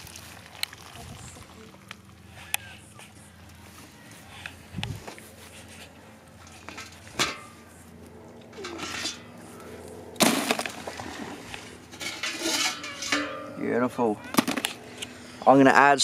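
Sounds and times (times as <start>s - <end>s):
water dripping and splashing: 0.0s - 2.2s.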